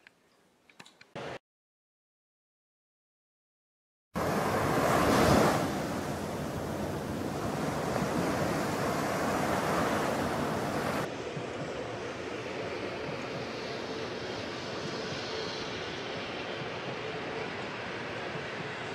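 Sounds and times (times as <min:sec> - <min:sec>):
sea waves breaking on beach: 0:04.2 - 0:11.1
wind on microphone: 0:04.2 - 0:18.9
dull outdoor rumble: 0:05.7 - 0:18.9.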